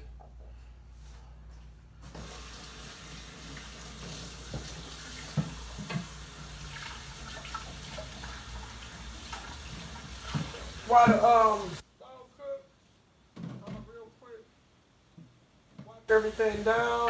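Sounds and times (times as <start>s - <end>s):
faucet water running into sink: 2.1s - 11.8s.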